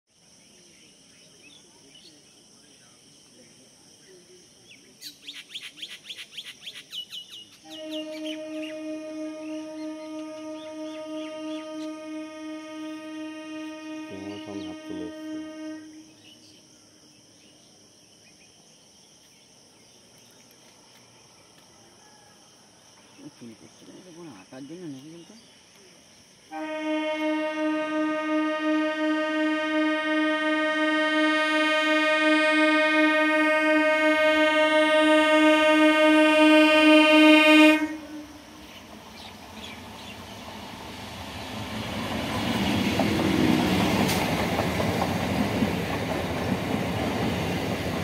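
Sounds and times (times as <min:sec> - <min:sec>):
high drone of insects: 0:00.1 - 0:48.0
bird whistled calls: 0:05.1 - 0:12.0.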